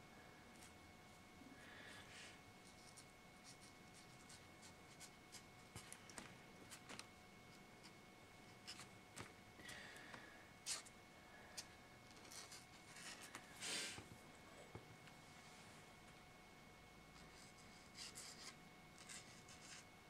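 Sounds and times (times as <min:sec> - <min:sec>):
faint steady whine: 0:00.0 - 0:20.0
pen scratching on paper: 0:17.2 - 0:19.8.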